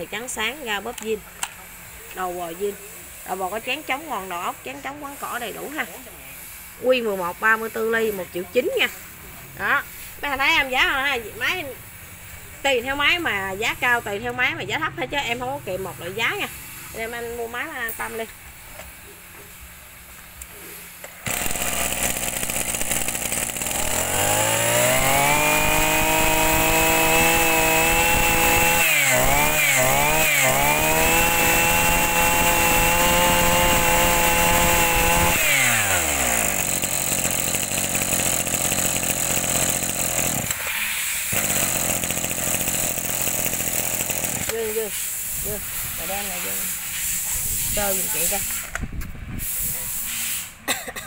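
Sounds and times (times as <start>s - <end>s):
brush cutter engine revving: 21.2s - 46.8s.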